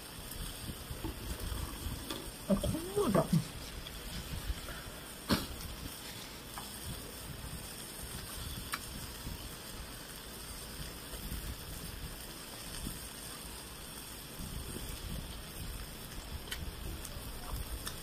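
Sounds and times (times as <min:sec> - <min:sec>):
pork sizzling in a pan: 0:00.0 - 0:18.0.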